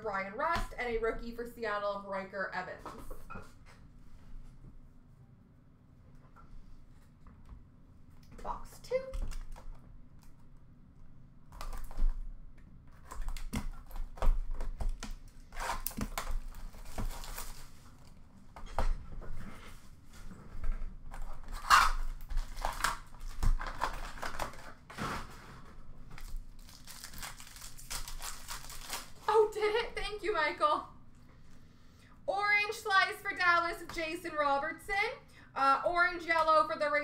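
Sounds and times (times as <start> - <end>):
plastic wrap and cardboard tearing: 12.9 - 18.2, 21.1 - 29.6
foil packs rustling: 14.0 - 18.2, 21.4 - 29.6.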